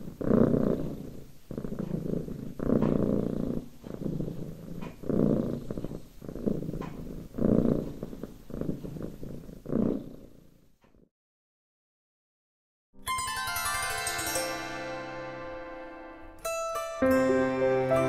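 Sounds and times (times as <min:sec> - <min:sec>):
cat purring: 0:00.0 - 0:11.1.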